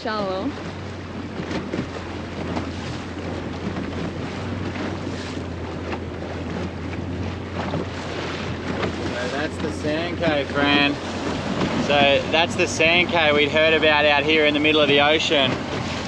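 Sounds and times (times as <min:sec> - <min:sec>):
boat engine low hum: 0:00.0 - 0:16.0
rushing water: 0:00.0 - 0:16.0
wind buffeting microphone: 0:00.0 - 0:16.0.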